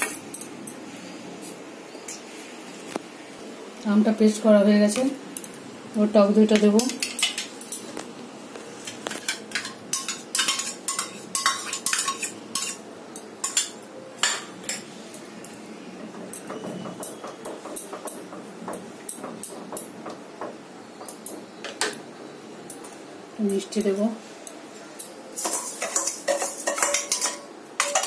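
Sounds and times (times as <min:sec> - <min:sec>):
spoon clinking against metal cookware: 0:09.2 - 0:14.8, 0:25.0 - 0:28.0.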